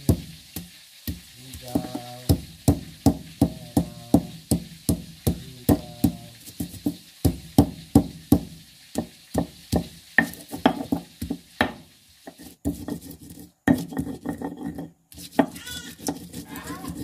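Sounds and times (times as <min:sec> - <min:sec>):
sharp knocking in kitchen: 0:01.7 - 0:11.8.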